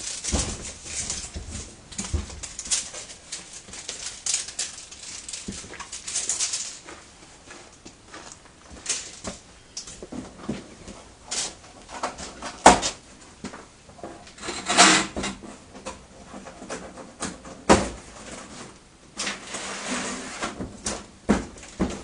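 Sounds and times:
scraping and rustling: 0.0 - 22.0.

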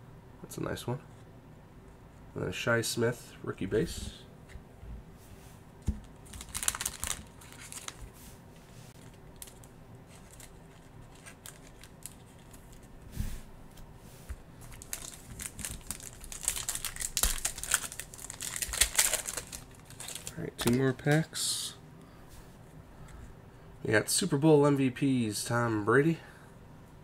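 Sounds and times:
cards rustling: 5.9 - 8.2, 8.9 - 12.9, 14.6 - 21.4
foil wrapper crinkling and tearing: 6.0 - 8.1, 9.0 - 12.9, 14.6 - 21.2.

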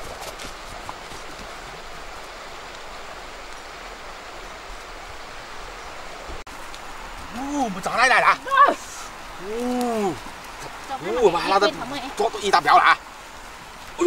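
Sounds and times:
stream flowing: 0.0 - 14.0.

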